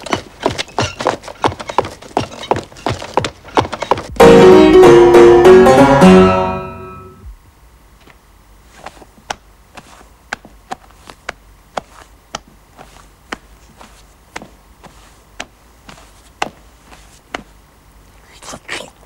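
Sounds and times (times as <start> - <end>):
plucked string chord: 4.2 - 7.3.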